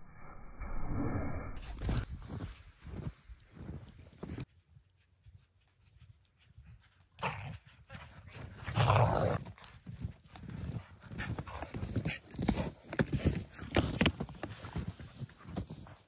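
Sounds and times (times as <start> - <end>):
snowshoe steps crunching snow: 1.8 - 4.5
dog paws in snow: 1.8 - 16.0.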